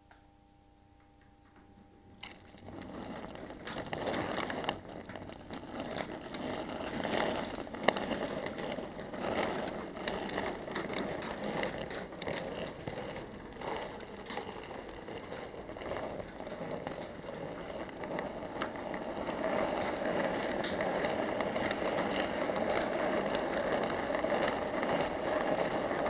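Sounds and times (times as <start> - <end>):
wheels clicking over rail joints: 1.0 - 26.0
model train wagons rumbling: 2.1 - 26.0.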